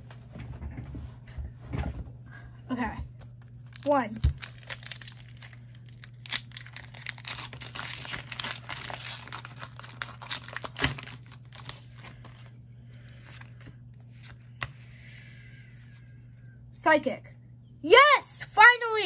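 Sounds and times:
foil wrapper tearing and crinkling: 3.6 - 12.5.

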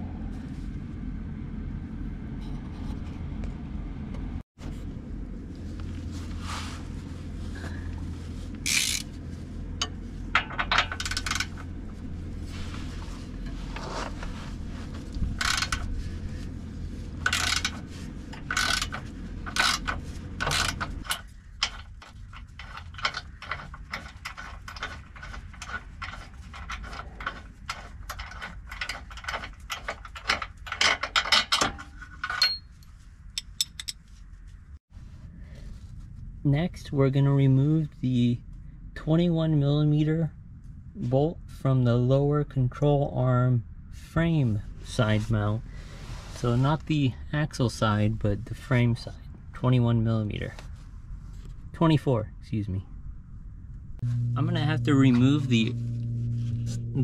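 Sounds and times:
low hum: 0.0 - 57.0
ratchet clicking: 8.7 - 9.1, 10.8 - 11.6, 15.4 - 15.8, 17.2 - 17.8, 18.4 - 31.3
metal clicks and clanks: 9.8 - 11.7, 15.4 - 15.9, 17.2 - 32.8.

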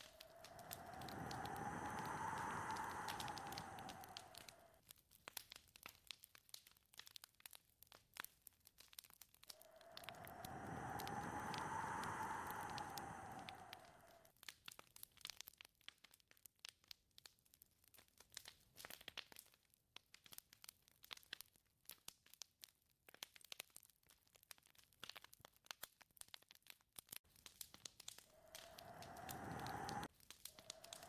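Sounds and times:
wind howling: 0.0 - 4.8, 9.6 - 14.3, 28.2 - 31.0
small crackles and clicks: 0.0 - 31.0.

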